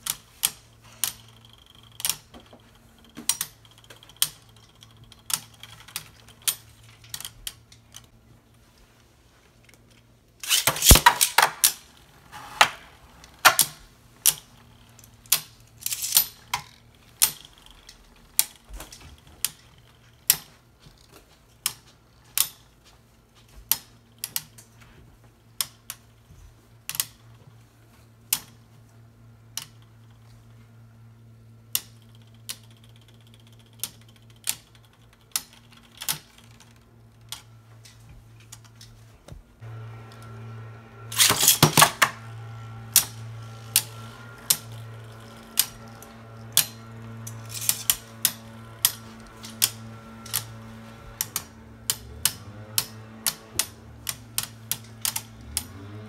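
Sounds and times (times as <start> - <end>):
steady low hum: 0.0 - 56.0
spinning tops clashing: 10.4 - 11.9, 41.1 - 42.2, 43.0 - 50.4.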